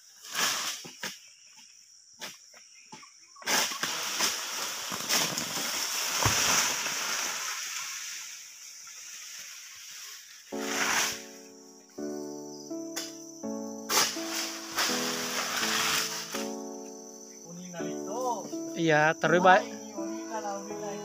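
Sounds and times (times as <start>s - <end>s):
rustling crash through fronds: 3.5s - 11.4s, 13.8s - 16.6s
sickle cracking through palm: 13.9s - 16.5s.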